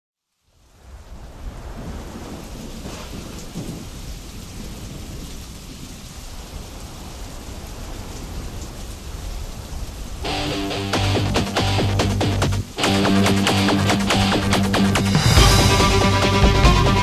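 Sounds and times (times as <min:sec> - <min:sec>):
steady rain: 0:00.2 - 0:17.0
thunder rumbling: 0:01.0 - 0:17.0
music: 0:10.3 - 0:17.0.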